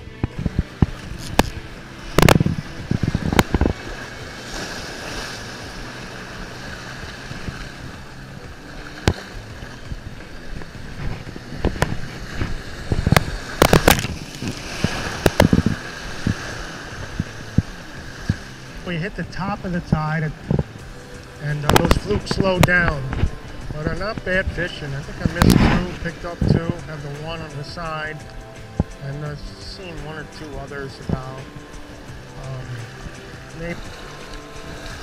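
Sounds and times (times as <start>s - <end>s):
waves breaking against rocks: 0.0s - 35.0s
wind on microphone: 0.0s - 35.0s
sharp knocks and thumps: 9.0s - 15.8s.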